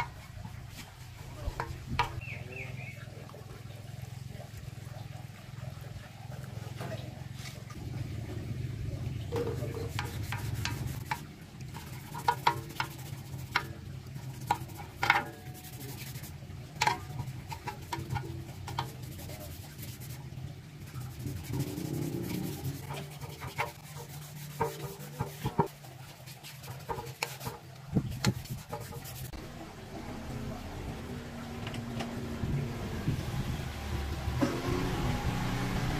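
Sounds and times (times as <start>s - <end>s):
sharp clicks and knocks: 9.3s - 20.0s, 21.4s - 25.8s, 26.4s - 29.3s
rubbing and scraping: 9.3s - 29.4s.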